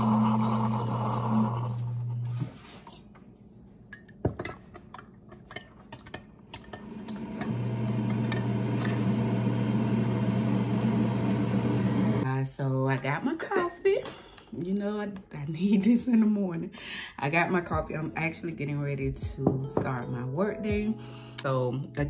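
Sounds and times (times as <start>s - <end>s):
coffee maker humming: 0.0s - 2.5s, 6.7s - 12.2s
steady machine hum: 7.0s - 12.2s.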